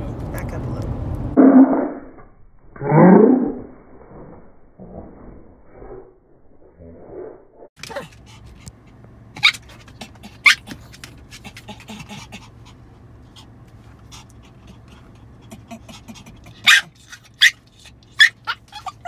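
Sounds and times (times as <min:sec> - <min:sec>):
low car hum: 0:00.0 - 0:03.0, 0:07.8 - 0:19.0
small dog yipping and whining: 0:09.4 - 0:09.8, 0:10.4 - 0:10.8, 0:16.6 - 0:19.0.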